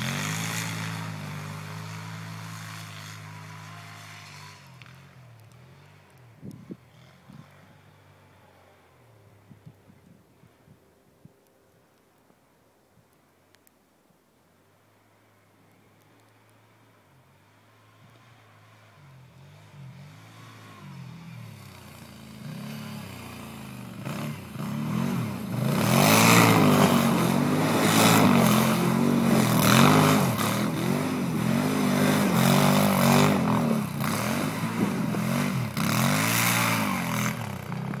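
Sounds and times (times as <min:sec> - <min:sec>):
quad engine revving: 0:00.0 - 0:08.1, 0:17.8 - 0:38.0.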